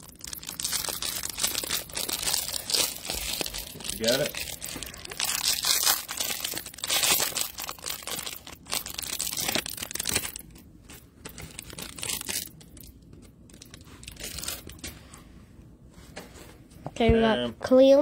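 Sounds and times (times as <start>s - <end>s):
plastic wrapper crinkling and tearing: 0.0s - 15.0s
cards rustling: 0.6s - 15.0s.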